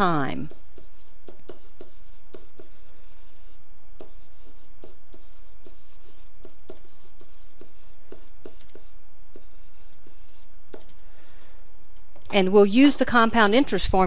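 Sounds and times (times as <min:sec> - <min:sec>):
stylus tapping and scratching screen: 0:00.0 - 0:11.2
steady low hum: 0:00.0 - 0:14.0.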